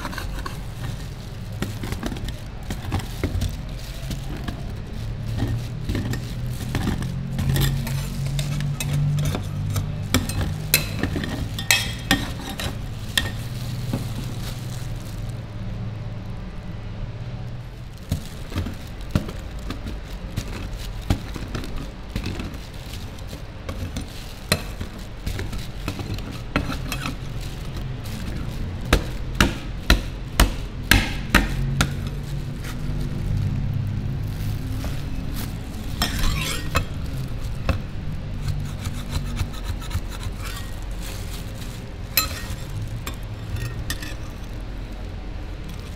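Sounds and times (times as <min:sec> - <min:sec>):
metal spatulas scraping steel plate: 0:00.0 - 0:01.1, 0:05.3 - 0:13.4, 0:35.9 - 0:37.0, 0:38.4 - 0:40.8, 0:42.2 - 0:44.4.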